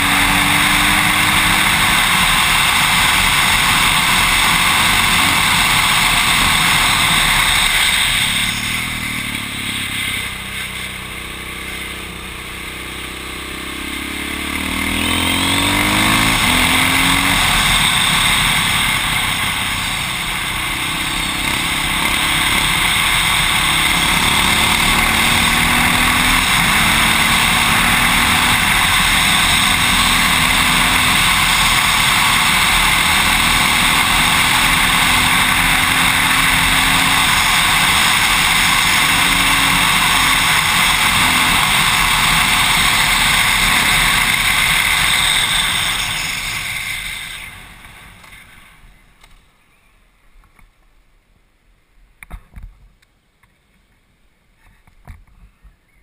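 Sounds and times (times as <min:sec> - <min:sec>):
motorcycle engine running: 0:00.0 - 0:48.7.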